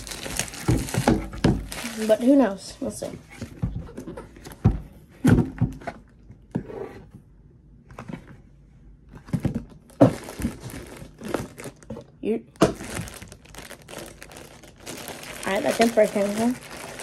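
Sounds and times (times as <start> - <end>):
cardboard box knocks and thumps: 0.5 - 1.8
cardboard rustle: 12.8 - 17.0.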